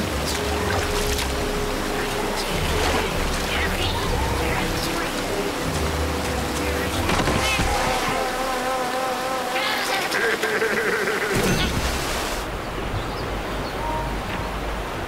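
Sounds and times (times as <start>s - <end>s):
rushing whitewater: 0.0s - 15.0s.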